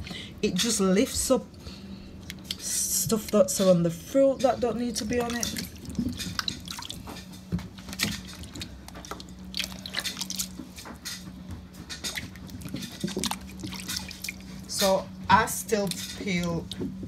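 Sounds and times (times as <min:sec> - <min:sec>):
steady low hum: 0:00.0 - 0:17.0
water splashing in a steel sink: 0:04.4 - 0:11.2, 0:11.8 - 0:16.9.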